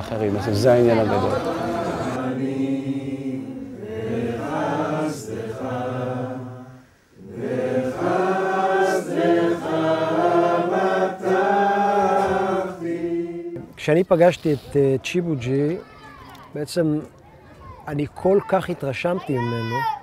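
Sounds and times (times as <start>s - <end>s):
group singing devotional song: 0.4s - 13.7s.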